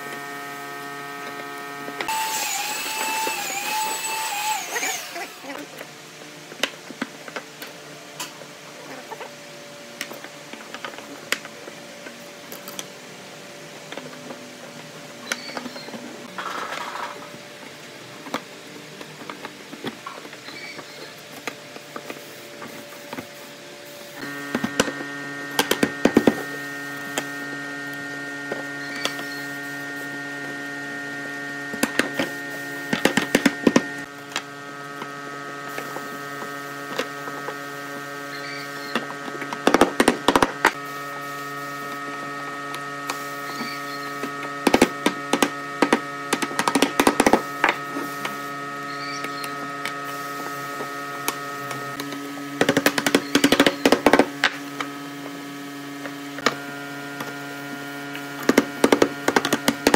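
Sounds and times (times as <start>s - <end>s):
electric motor hum: 0.0s - 59.9s.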